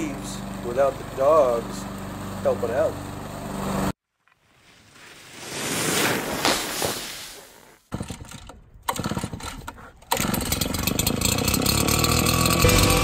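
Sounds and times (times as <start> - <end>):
leaf blower engine running: 0.0 - 4.0, 8.0 - 13.0.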